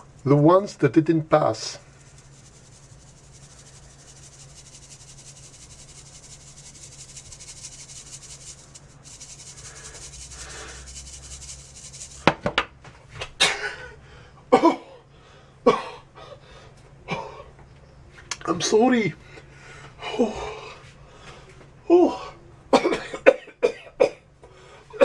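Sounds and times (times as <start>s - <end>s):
powder rustling in mesh sieve: 0.0s - 12.4s
person coughing: 13.4s - 13.9s, 14.5s - 15.0s, 15.7s - 16.1s, 17.1s - 17.4s, 22.8s - 24.2s.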